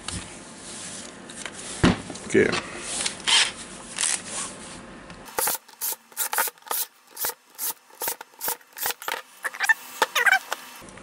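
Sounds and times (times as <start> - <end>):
screwdriver scraping a screw: 5.4 - 10.6.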